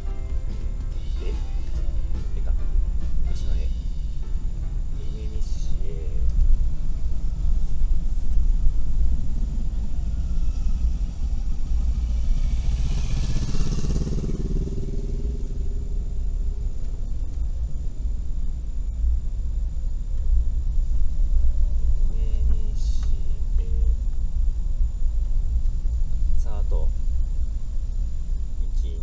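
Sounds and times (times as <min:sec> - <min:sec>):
van engine low drone: 0:00.0 - 0:29.0
motorcycle passing: 0:05.6 - 0:18.6.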